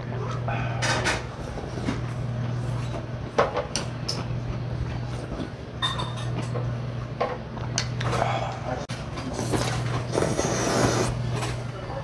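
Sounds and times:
steady low hum: 0:00.0 - 0:12.0
tableware clinking: 0:05.8 - 0:06.6.

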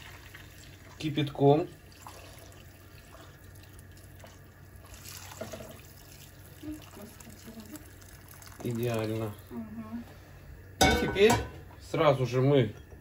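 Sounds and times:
water pouring into pot: 0:00.0 - 0:09.6.

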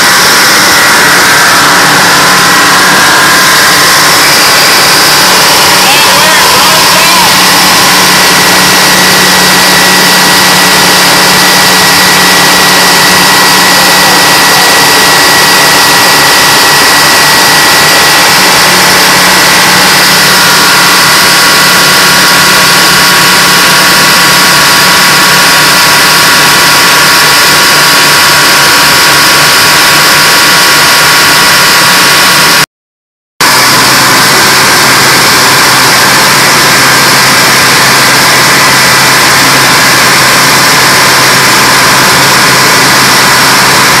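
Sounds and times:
diesel engines running: 0:00.0 - 0:32.6, 0:33.4 - 0:44.0
high engine whine: 0:00.0 - 0:32.6, 0:33.4 - 0:44.0.

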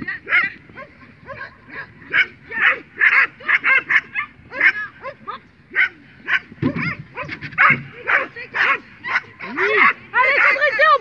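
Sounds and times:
dog barking in high yaps: 0:01.4 - 0:04.9, 0:05.8 - 0:10.9.

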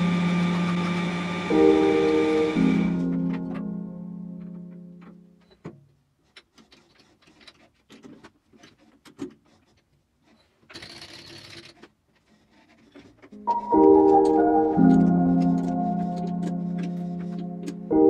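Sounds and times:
lathe cutting hiss: 0:00.0 - 0:03.1.

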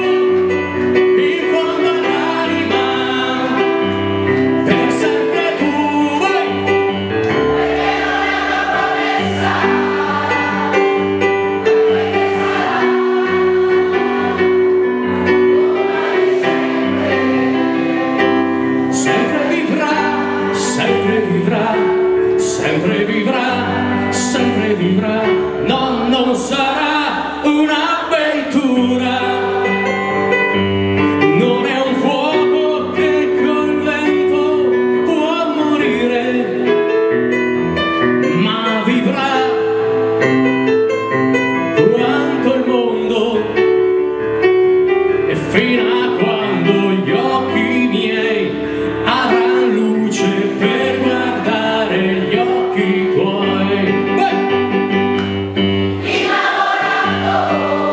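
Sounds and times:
man singing into a microphone: 0:00.0 - 0:06.9, 0:18.9 - 0:30.0, 0:31.2 - 0:37.0, 0:38.2 - 0:39.7, 0:41.7 - 0:43.9, 0:45.3 - 0:54.6
keyboard accompaniment: 0:00.0 - 0:57.9.

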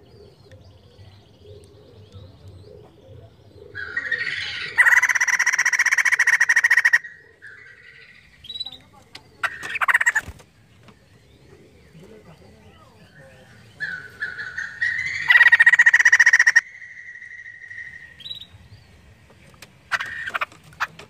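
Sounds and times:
bird chattering rattle call: 0:03.8 - 0:10.3, 0:13.5 - 0:18.5, 0:19.5 - 0:21.0.

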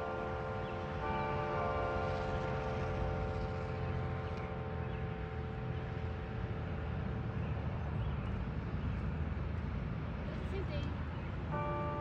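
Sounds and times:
church bell ringing: 0:00.0 - 0:05.7, 0:11.5 - 0:12.0.

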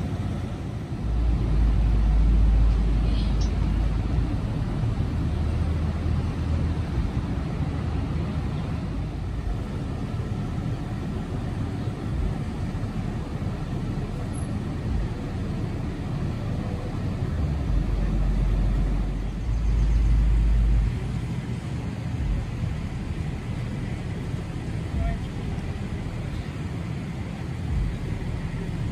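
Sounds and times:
fire trucks idling: 0:00.0 - 0:28.9.

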